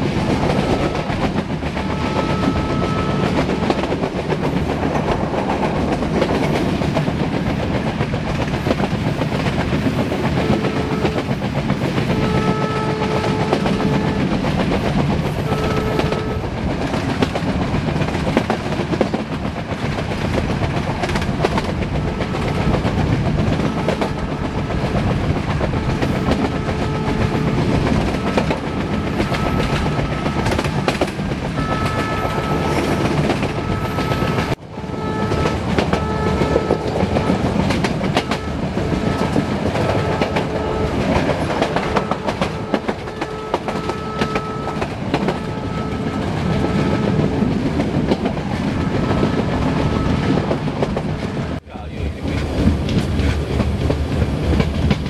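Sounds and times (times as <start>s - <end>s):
train wheels clattering: 0.0s - 55.0s
locomotive horn blasts: 0.6s - 4.0s, 10.3s - 11.4s, 12.0s - 14.5s, 15.3s - 16.5s, 21.9s - 47.6s, 48.6s - 50.5s.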